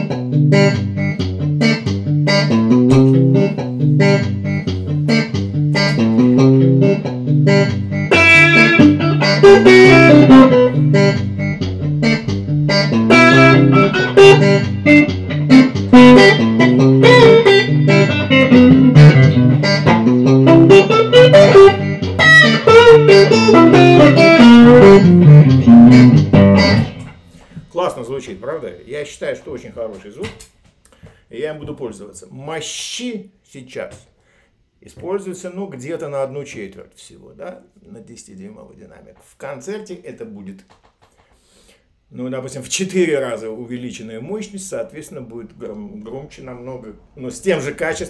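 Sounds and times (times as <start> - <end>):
electric guitar playing melody: 0.0 - 27.6.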